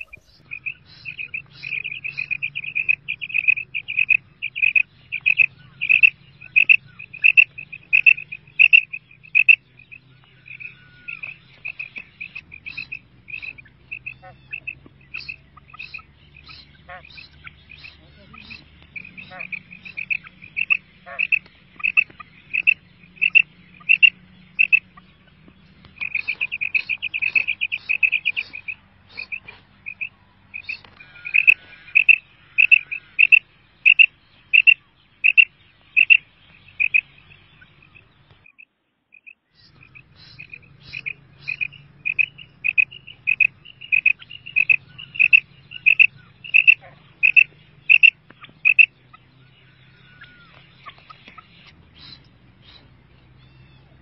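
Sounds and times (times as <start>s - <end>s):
quail calling: 0.0s - 38.6s, 39.2s - 54.0s.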